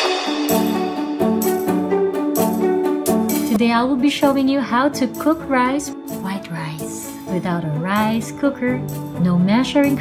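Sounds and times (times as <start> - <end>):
intro music with a beat: 0.0 - 3.6.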